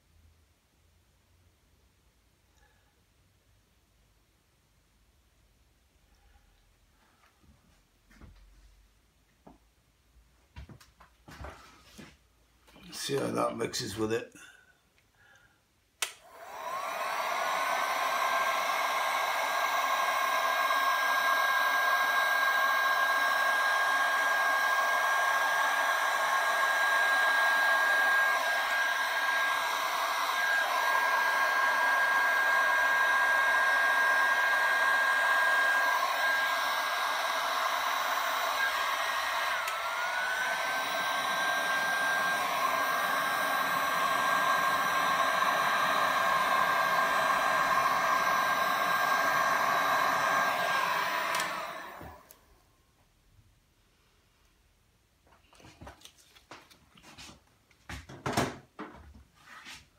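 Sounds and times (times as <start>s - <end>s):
heat gun fan whine: 16.0s - 52.5s.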